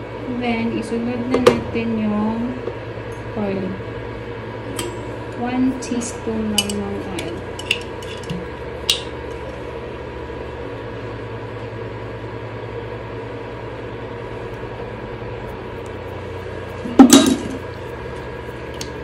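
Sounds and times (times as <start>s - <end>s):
induction cooktop humming: 0.0s - 19.0s.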